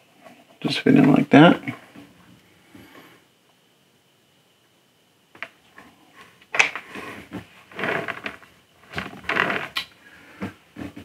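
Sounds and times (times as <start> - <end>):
parts rubbing and clattering: 5.8 - 11.0.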